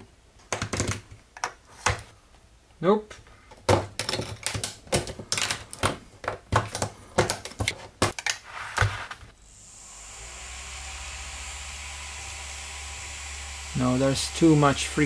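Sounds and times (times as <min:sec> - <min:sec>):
plastic pieces clicking together: 0:03.6 - 0:08.4.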